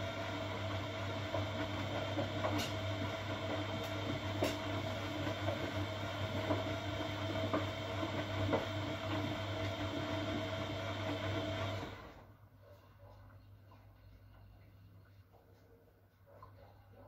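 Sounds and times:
washing machine motor hum: 0:00.0 - 0:12.4.

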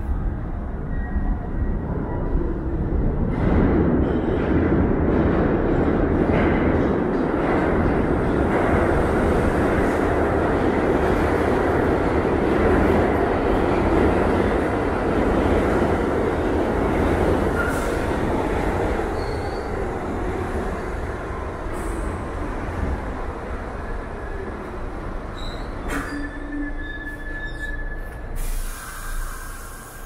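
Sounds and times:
subway train rumbling: 0:00.0 - 0:30.0
faint high wheel squeal: 0:25.4 - 0:28.2.

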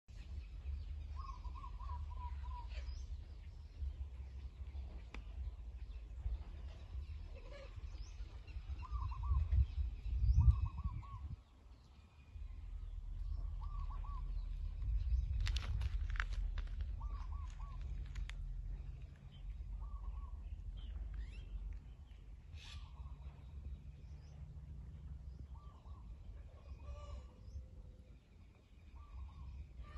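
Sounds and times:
wind rumbling on microphone: 0:00.1 - 0:28.2.

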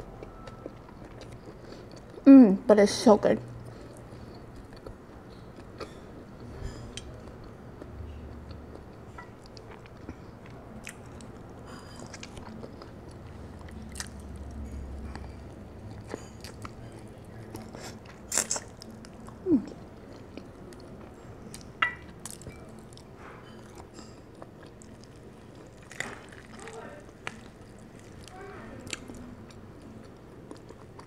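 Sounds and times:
person biting and chewing: 0:17.6 - 0:19.8, 0:24.4 - 0:29.3.

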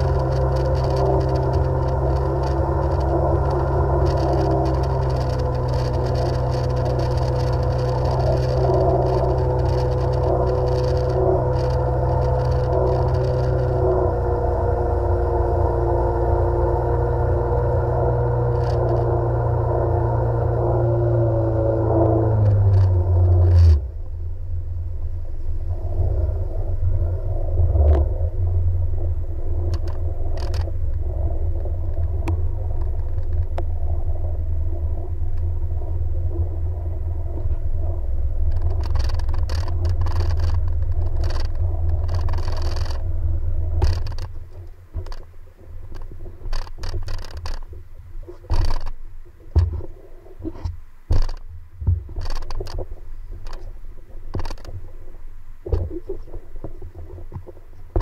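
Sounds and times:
knocks and scrapes: 0:00.0 - 0:14.1, 0:29.6 - 0:33.7, 0:37.2 - 0:58.0
jet ski engine rumbling: 0:00.0 - 0:58.0.

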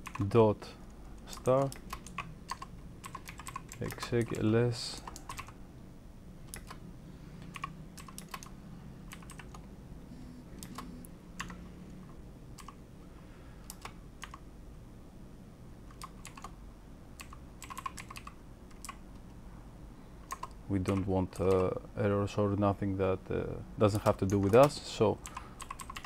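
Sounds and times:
computer keyboard clicks: 0:00.0 - 0:00.3, 0:01.2 - 0:05.6, 0:06.5 - 0:06.8, 0:07.4 - 0:08.5, 0:09.1 - 0:09.7, 0:10.6 - 0:11.6, 0:12.6 - 0:12.8, 0:13.6 - 0:14.4, 0:15.9 - 0:16.6, 0:17.2 - 0:19.2, 0:20.2 - 0:21.7, 0:24.0 - 0:26.0.

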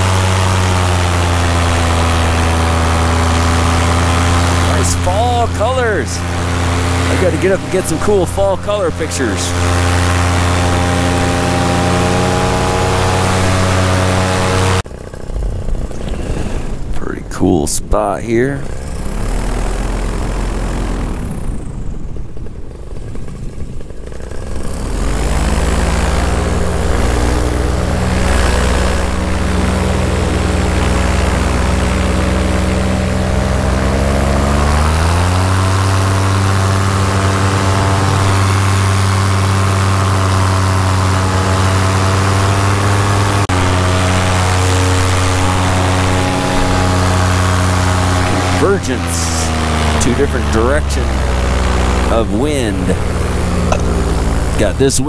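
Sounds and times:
paramotor engine and propeller: 0:00.0 - 0:55.0.

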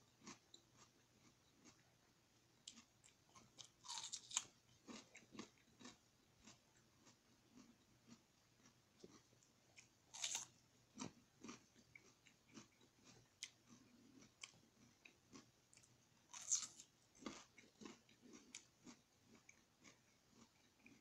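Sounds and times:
person chewing: 0:00.0 - 0:02.0, 0:02.6 - 0:21.0.

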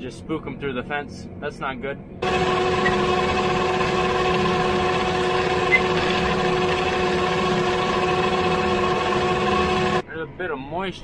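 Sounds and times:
fertilizer spreader running: 0:02.2 - 0:10.0.

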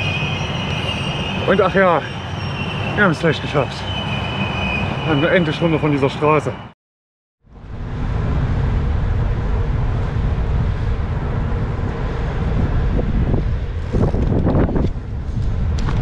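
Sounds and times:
road noise: 0:00.0 - 0:06.8, 0:07.4 - 0:16.0
wind buffeting microphone: 0:07.6 - 0:16.0.

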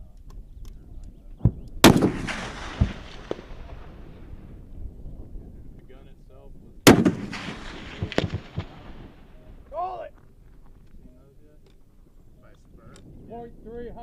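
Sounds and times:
rifle shot echoing: 0:01.4 - 0:04.7, 0:06.8 - 0:09.6
faint sharp cracks: 0:06.9 - 0:09.2.

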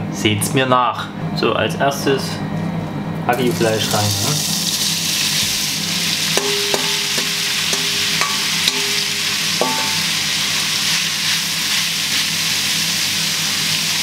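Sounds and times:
cooking machine humming: 0:02.6 - 0:14.0
meat sizzling in a frying pan: 0:03.5 - 0:14.0.

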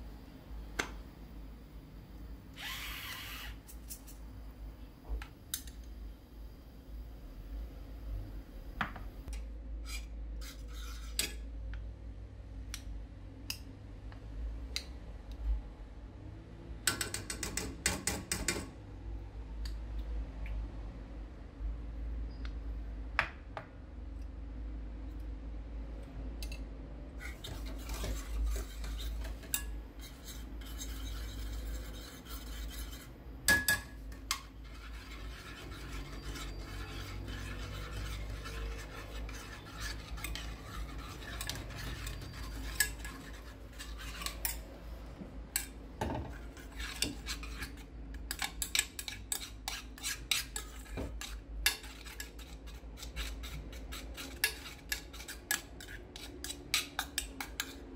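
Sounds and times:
utensil scraping cookware: 0:27.2 - 0:45.0, 0:45.6 - 0:57.8.

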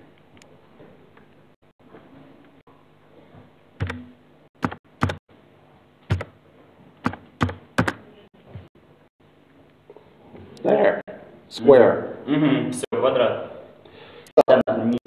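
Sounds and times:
computer keyboard keystrokes: 0:03.8 - 0:05.2.

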